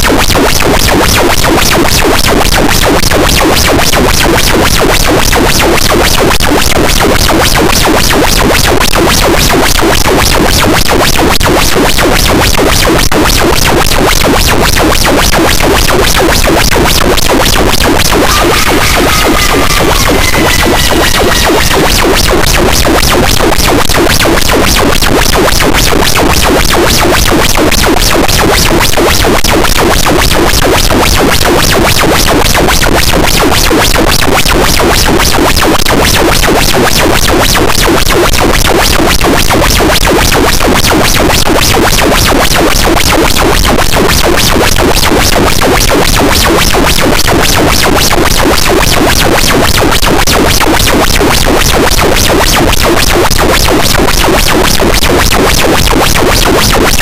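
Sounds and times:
distorted harsh noise wall: 0:15.8 - 0:25.6.

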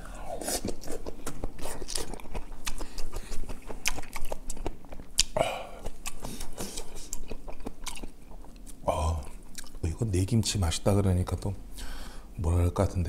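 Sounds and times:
close-miked chewing: 0:00.1 - 0:10.0
wet mouth clicks and smacks: 0:00.6 - 0:09.8.

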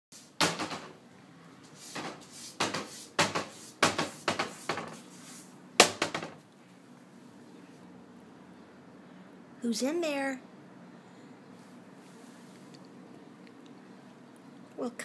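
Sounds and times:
cabinet door banging against frame: 0:00.4 - 0:01.0, 0:02.0 - 0:04.9, 0:05.8 - 0:06.4.

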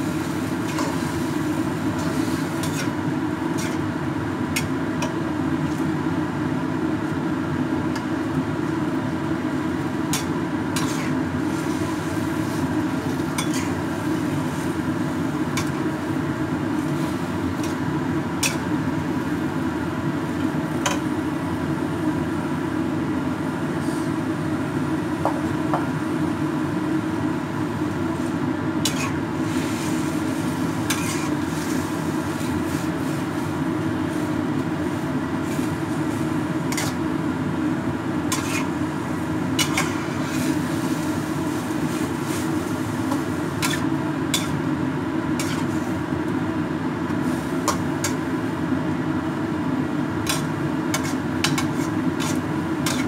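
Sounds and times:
metal spatula scraping a wok: 0:02.0 - 0:03.0, 0:03.6 - 0:03.9, 0:10.2 - 0:12.6, 0:13.4 - 0:13.8, 0:28.8 - 0:31.9, 0:36.7 - 0:37.0, 0:38.3 - 0:38.8, 0:39.6 - 0:42.5, 0:43.1 - 0:44.6, 0:45.4 - 0:45.9, 0:50.2 - 0:53.0.

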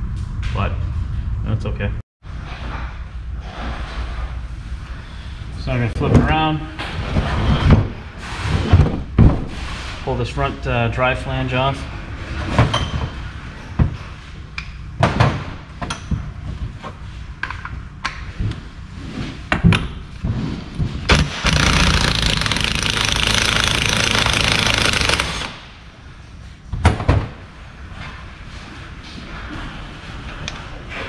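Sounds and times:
impact wrench hammering: 0:21.1 - 0:25.6.

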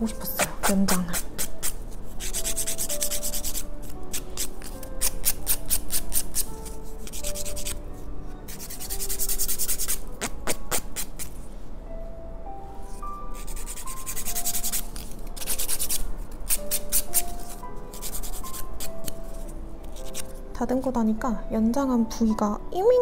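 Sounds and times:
nail file filing fingernail: 0:00.1 - 0:07.8, 0:08.5 - 0:11.4, 0:13.4 - 0:20.3.

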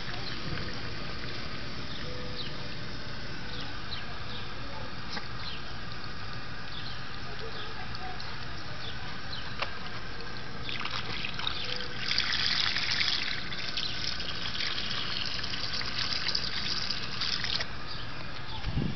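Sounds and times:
hose water splashing on gravel: 0:10.3 - 0:17.8.

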